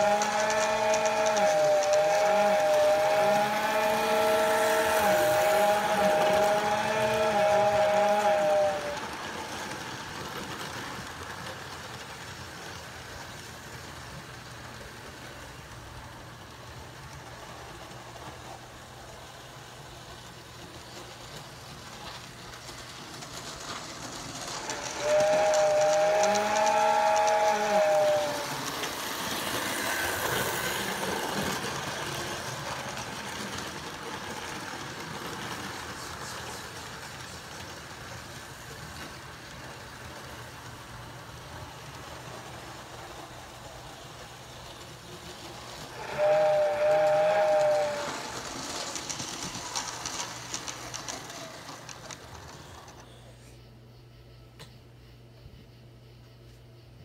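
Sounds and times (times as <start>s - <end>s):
train whistle: 0.0s - 9.8s, 24.4s - 34.5s, 45.7s - 48.8s
hiss: 0.0s - 53.6s
model train rumbling: 0.0s - 54.2s.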